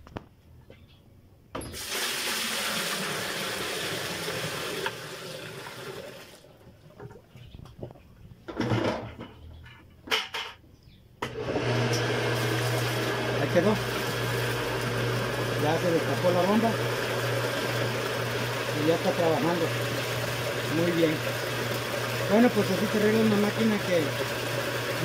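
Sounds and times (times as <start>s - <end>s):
drain pump humming: 1.6s - 7.2s, 11.2s - 25.0s
water splashing into a tub: 1.8s - 7.2s.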